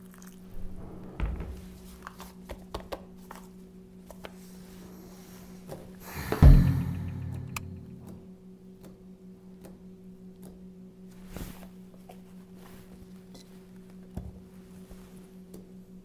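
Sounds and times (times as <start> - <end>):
deep booming hit: 6.0 - 8.2.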